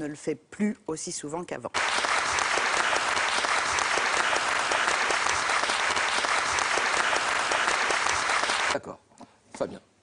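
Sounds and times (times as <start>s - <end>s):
studio audience applauding: 1.8s - 8.8s.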